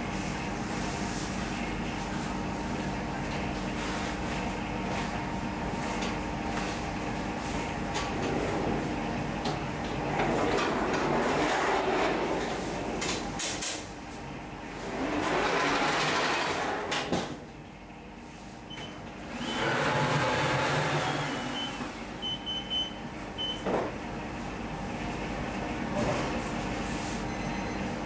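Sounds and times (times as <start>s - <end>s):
oven loader rumbling on rails: 7.7s - 13.6s, 14.6s - 17.4s.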